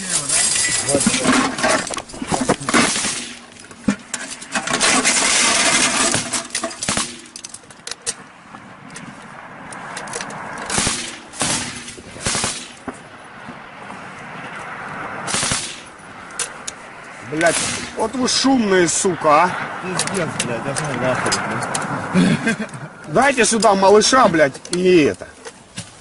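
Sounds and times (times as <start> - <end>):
machine-gun fire: 10.7 - 12.8, 15.3 - 15.9.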